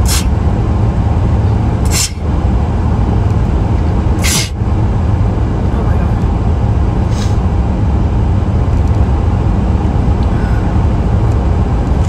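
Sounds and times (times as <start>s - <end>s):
short hiss: 0.0s - 0.3s, 1.9s - 2.2s
vehicle road noise rumble: 0.0s - 12.0s.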